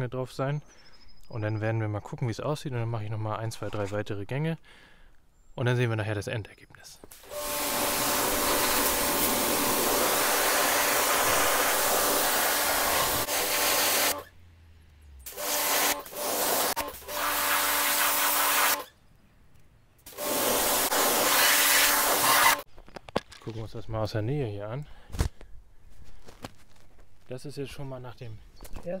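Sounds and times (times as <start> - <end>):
pressure washer spray hissing: 7.2 - 14.3, 15.3 - 18.8, 20.1 - 22.6.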